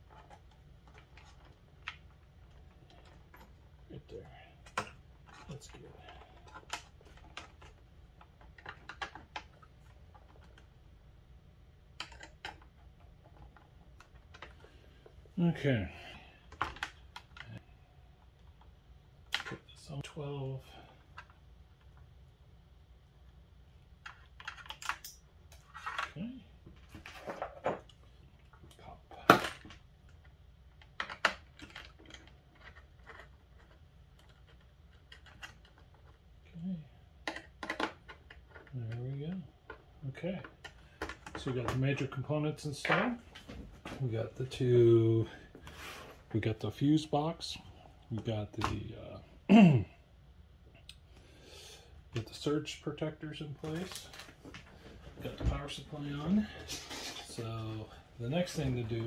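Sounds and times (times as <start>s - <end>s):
clicks and taps handling wires: 4.6s - 10.7s, 53.6s - 57.8s.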